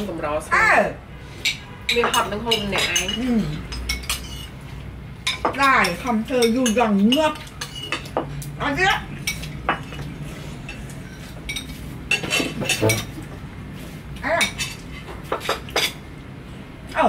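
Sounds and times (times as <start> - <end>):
cutlery clinking on plates: 1.4 - 4.6, 5.3 - 8.5, 9.2 - 13.3, 14.4 - 16.0.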